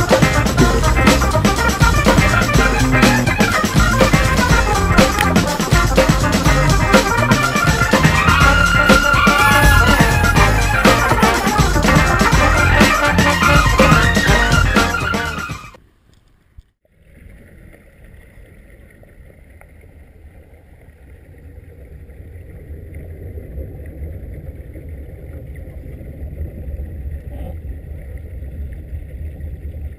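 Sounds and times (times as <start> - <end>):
background music: 0.0 - 15.7.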